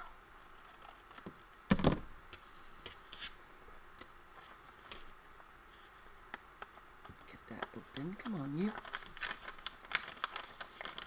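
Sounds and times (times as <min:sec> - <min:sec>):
thump on table: 0:01.7 - 0:02.1
paper rustling: 0:07.5 - 0:11.0.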